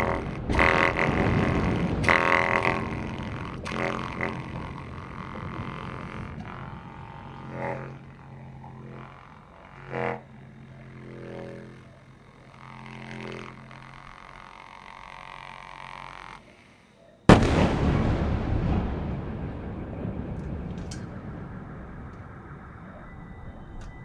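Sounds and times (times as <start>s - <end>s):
trumpet buzzing drone: 0.0s - 24.0s
loud bomb explosion: 17.3s - 22.9s.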